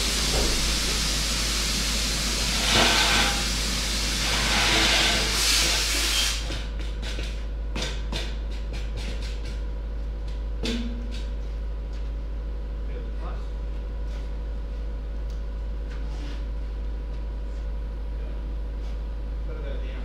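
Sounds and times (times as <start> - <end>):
loud steady hiss: 0.0 - 6.5
metallic clanks and knocks: 10.6 - 11.4.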